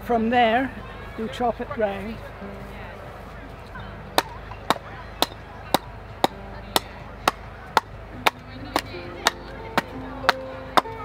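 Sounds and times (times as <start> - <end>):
hatchet chopping wood: 4.2 - 10.9.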